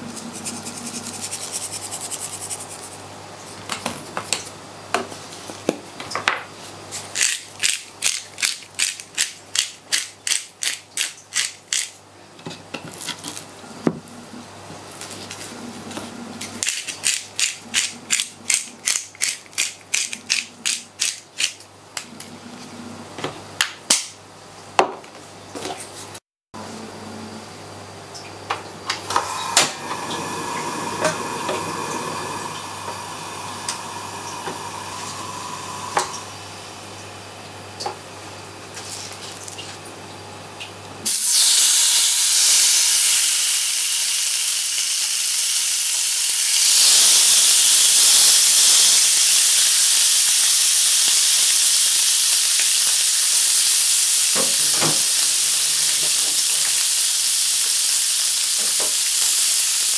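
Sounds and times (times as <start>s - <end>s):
fish sizzling in hot oil: 41.1s - 59.9s.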